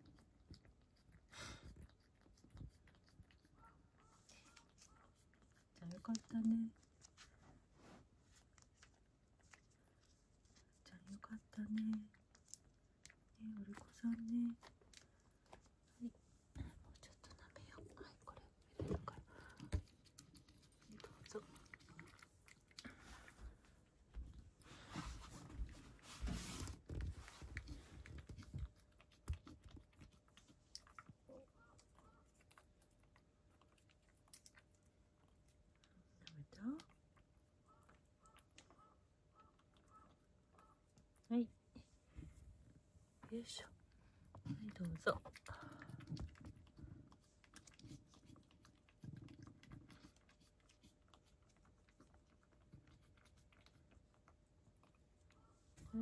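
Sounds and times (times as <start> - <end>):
cat eating from a dish: 0.0 - 56.0.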